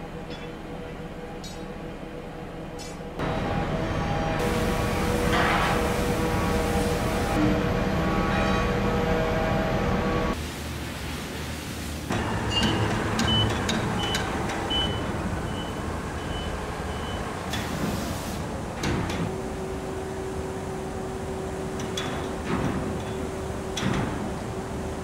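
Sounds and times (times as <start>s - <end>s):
crane warning beeper: 12.5s - 17.3s.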